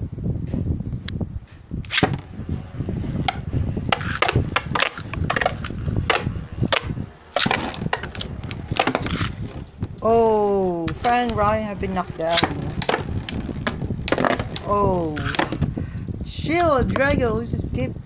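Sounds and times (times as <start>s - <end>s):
sharp plastic clacks: 1.8s - 2.2s, 3.3s - 9.8s, 12.3s - 15.7s
low rattle: 1.8s - 17.3s
spinning tops whirring: 10.9s - 15.7s.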